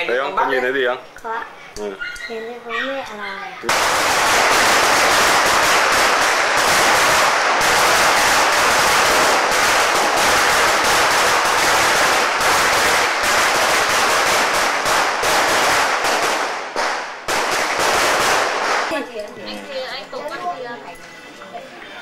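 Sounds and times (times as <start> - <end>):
firecrackers crackling: 3.6 - 19.4.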